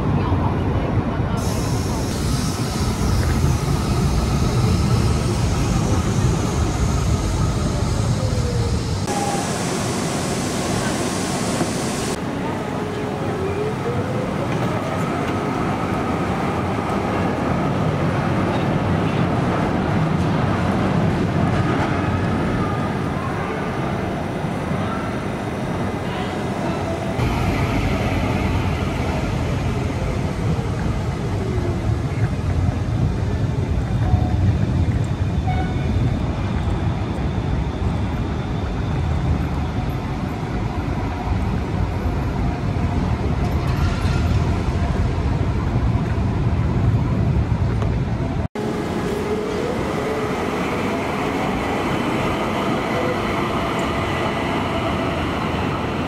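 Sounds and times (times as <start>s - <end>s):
tram rumbling on rails: 0.0s - 56.0s.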